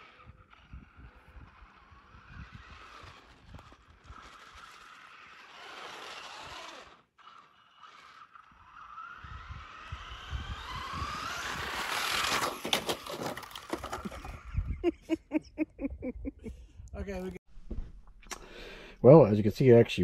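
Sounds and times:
electric motor whining: 0.0 - 12.8
toy truck crashing and flipping: 0.0 - 14.6.

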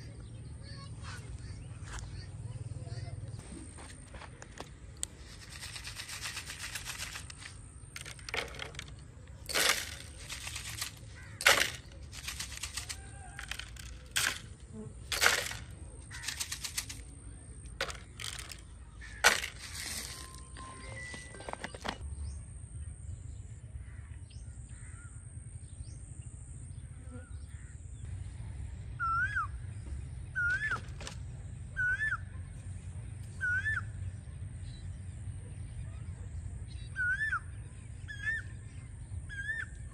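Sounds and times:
bird calling: 0.0 - 22.0, 29.0 - 32.6, 33.3 - 34.1, 36.7 - 39.9.

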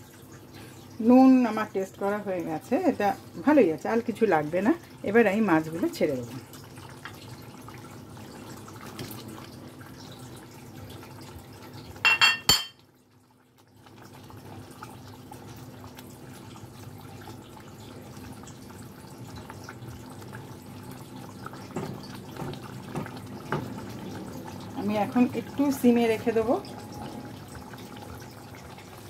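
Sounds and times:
gravy bubbling in pan: 0.0 - 12.0, 12.8 - 29.0
cookware clinks: 12.0 - 12.8.

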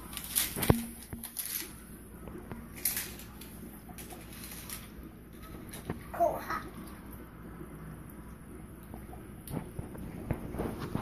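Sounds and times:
aquarium air pump hum: 0.0 - 11.0
young child babbling: 6.1 - 6.8.

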